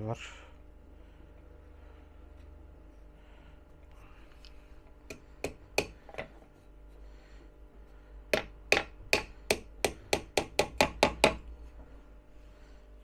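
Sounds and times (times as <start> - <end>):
hammer driving nails into wood: 5.1 - 6.3, 8.3 - 11.4.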